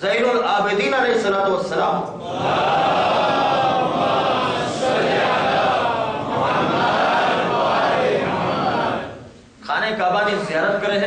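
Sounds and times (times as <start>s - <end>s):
congregation chanting in unison: 2.2s - 9.4s.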